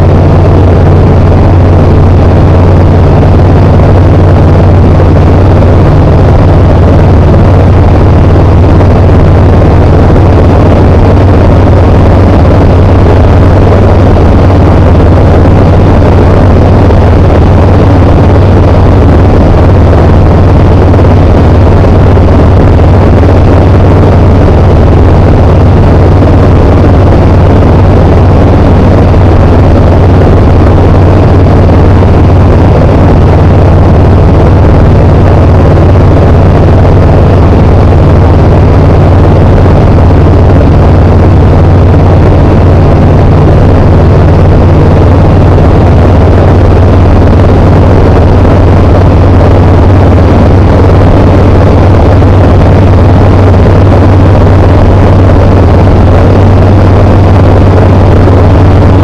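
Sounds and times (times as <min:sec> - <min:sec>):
light aircraft engine drone: 0:00.0 - 0:44.5.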